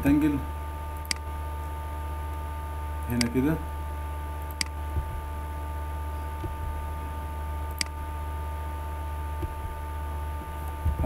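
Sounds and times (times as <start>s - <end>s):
steady electrical hum: 0.0s - 11.0s
computer mouse clicks: 7.7s - 8.0s.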